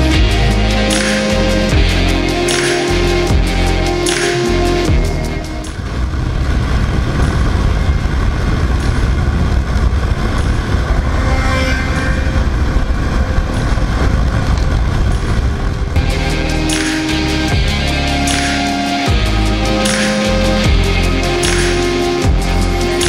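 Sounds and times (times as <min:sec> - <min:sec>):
motorcycle engine cruising: 0:00.0 - 0:23.0
wind rush on microphone: 0:00.0 - 0:23.0.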